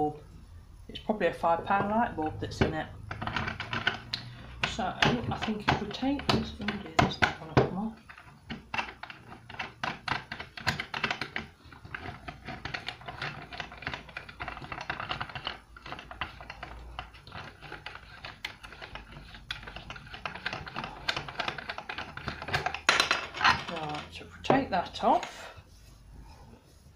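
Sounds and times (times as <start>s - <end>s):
lampshade fitting clicking and rattling: 2.6s - 24.1s.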